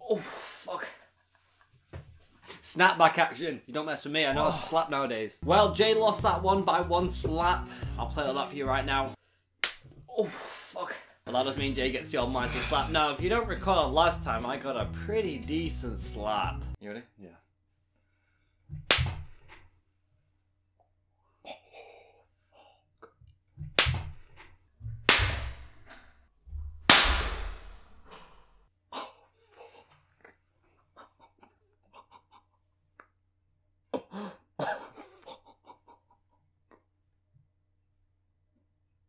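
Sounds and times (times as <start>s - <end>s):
hand slapping a face: 9.6s - 9.9s, 18.8s - 19.6s, 23.6s - 26.0s, 26.8s - 28.3s.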